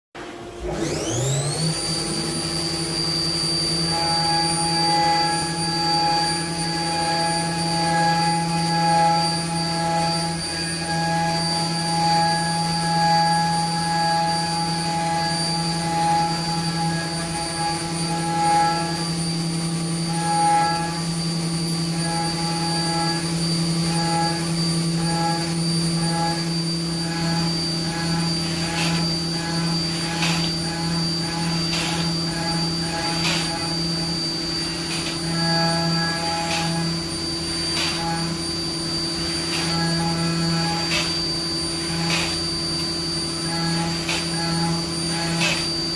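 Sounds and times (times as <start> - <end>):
mill spindle cutting whine: 0.2 - 45.9.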